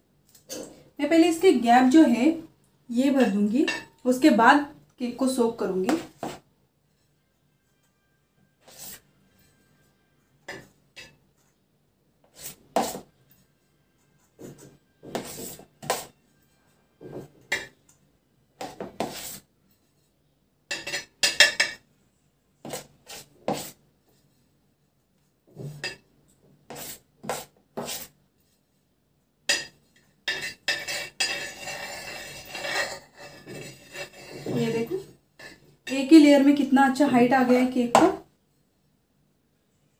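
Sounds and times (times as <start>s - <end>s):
metal knife scraping cream: 8.6s - 9.9s, 12.3s - 16.7s, 18.6s - 19.9s, 22.6s - 23.8s, 26.7s - 28.6s, 29.5s - 35.7s.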